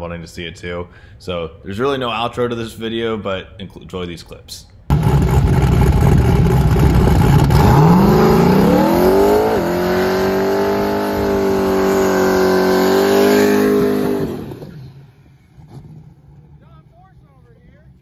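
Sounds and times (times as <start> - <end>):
tyres spinning in a burnout: 4.9 - 16.7
car engine revving: 4.9 - 17.5.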